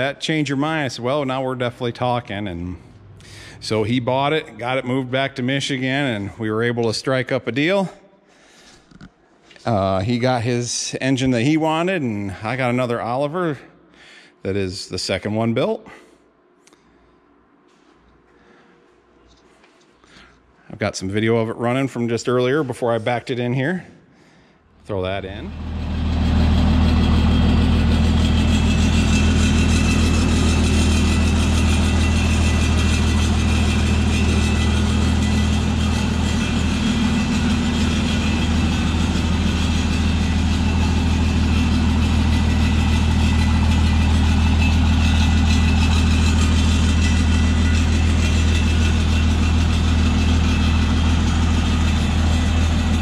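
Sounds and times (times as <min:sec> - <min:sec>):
tractor engine running: 0:25.0 - 0:53.0.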